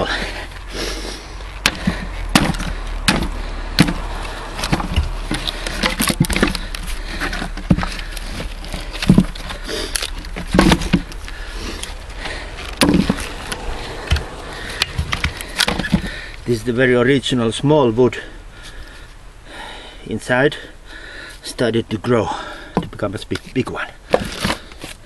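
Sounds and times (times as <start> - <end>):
wood cracking apart: 0.0 - 16.5
axe striking firewood: 1.6 - 16.2
split wood pieces knocking: 1.6 - 16.4, 22.7 - 25.0.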